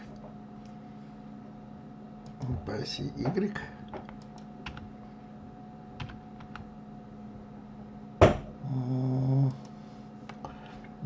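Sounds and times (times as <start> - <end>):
faint low electrical hum: 0.0 - 11.0
man humming: 8.6 - 9.7.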